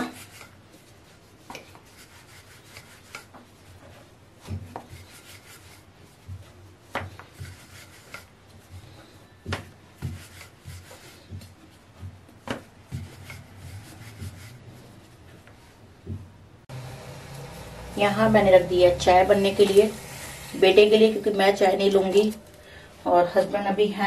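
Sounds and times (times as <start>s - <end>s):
rolling pin rubbing strokes: 0.0s - 16.1s.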